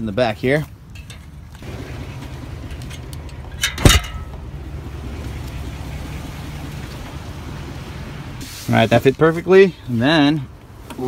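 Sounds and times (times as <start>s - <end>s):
metal bike parts clanking: 0.9s - 4.5s
steady low hum: 1.5s - 8.4s.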